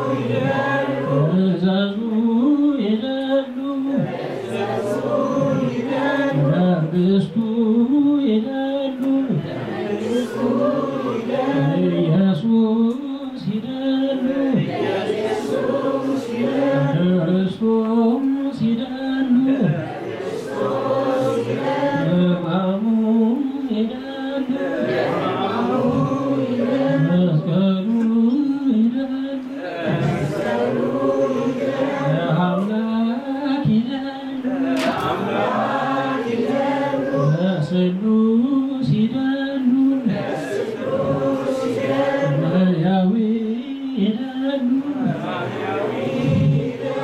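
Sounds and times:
congregation chanting in unison: 0.0s - 47.0s.

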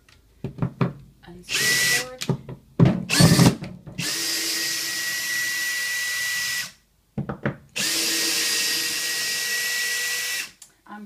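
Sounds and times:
cordless drill running: 1.5s - 2.1s, 3.1s - 6.8s, 7.8s - 10.6s
drill clicks: 1.5s - 2.3s, 3.1s - 6.7s, 7.8s - 10.7s.

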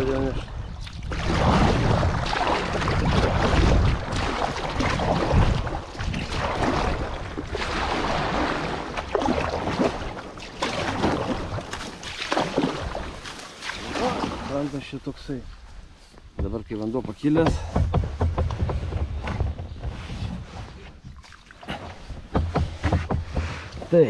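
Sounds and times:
wind buffeting microphone: 0.0s - 10.1s
water rushing and splashing: 0.0s - 15.4s.

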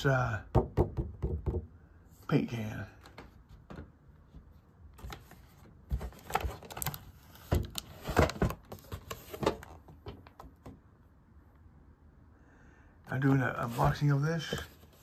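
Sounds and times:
plastic box handled: 3.0s - 10.8s, 13.7s - 15.0s.

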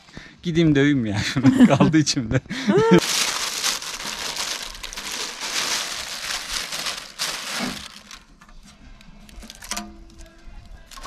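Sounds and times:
packaging crinkling: 3.0s - 8.5s, 9.3s - 9.8s.

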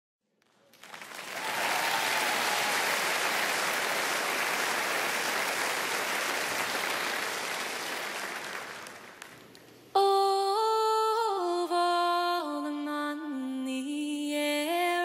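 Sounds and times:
audience applauding: 0.4s - 9.8s.

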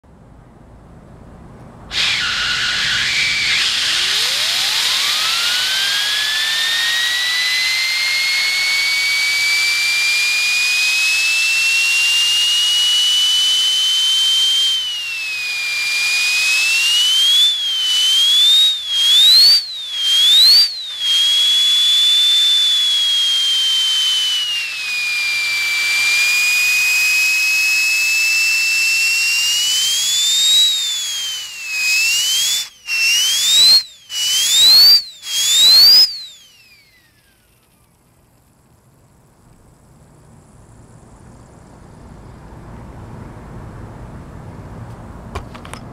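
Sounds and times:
turbo whistle: 1.9s - 37.8s.

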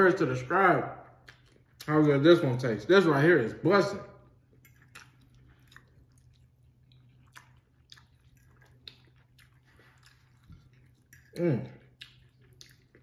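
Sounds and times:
low steady hum: 0.0s - 13.0s
faint chewing: 1.0s - 2.2s, 4.2s - 13.0s.

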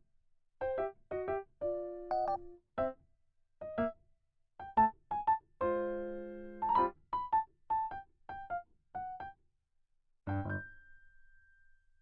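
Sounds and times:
cute background music: 0.6s - 3.0s, 4.6s - 9.4s, 10.3s - 11.8s.

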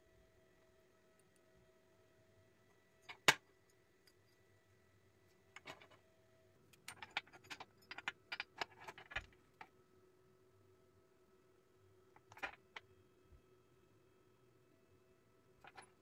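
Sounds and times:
metal parts clinking on steel plate: 6.8s - 9.3s.

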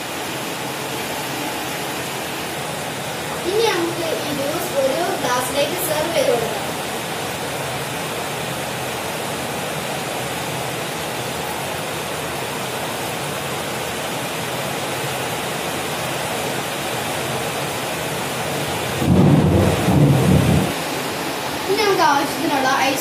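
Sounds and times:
steady rushing hiss: 0.0s - 23.0s
loud low sound: 19.0s - 20.8s.

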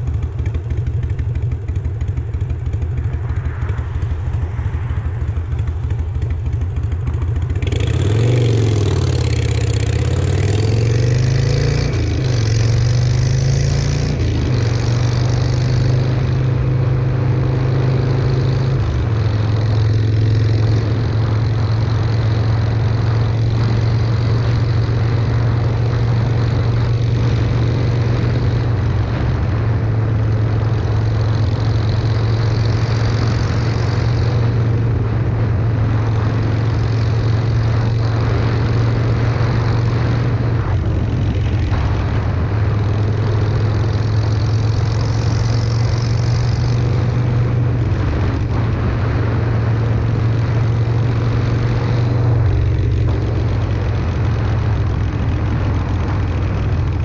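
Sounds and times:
motorcycle engine running loud: 0.0s - 57.0s.

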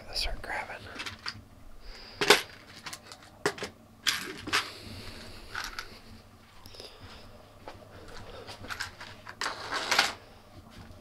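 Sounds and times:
plastic pieces rattling: 0.9s - 1.4s, 2.2s - 4.7s, 5.5s - 5.9s, 8.1s - 10.2s.

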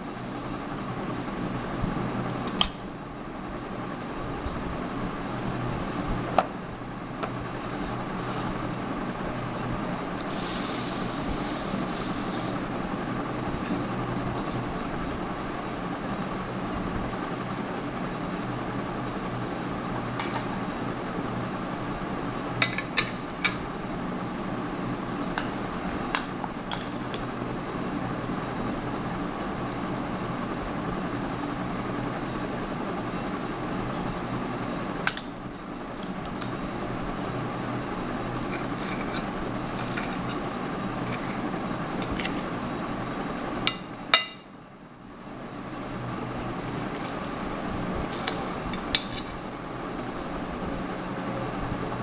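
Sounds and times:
steady low hum: 0.0s - 52.0s.

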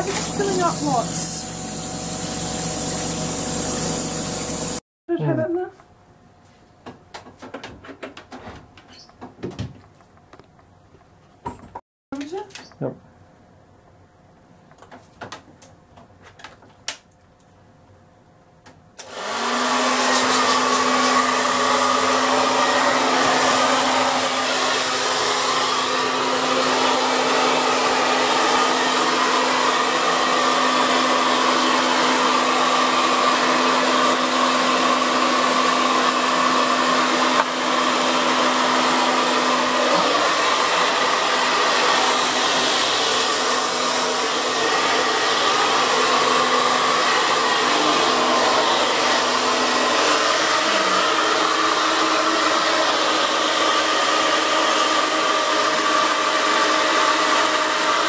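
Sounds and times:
hair dryer humming: 0.0s - 4.8s, 19.0s - 58.0s.

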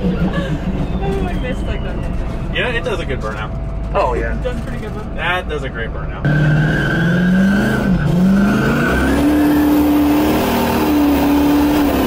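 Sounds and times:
tire squeal: 0.0s - 2.5s, 6.3s - 12.0s
tire and road noise: 0.0s - 12.0s
truck engine revving: 0.0s - 12.0s.

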